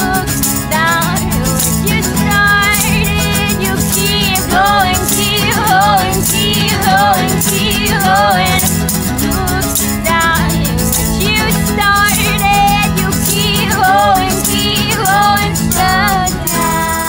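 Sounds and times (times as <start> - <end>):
strummed acoustic guitars: 0.0 - 17.0
tambourine: 0.0 - 17.0
women singing: 0.0 - 17.0.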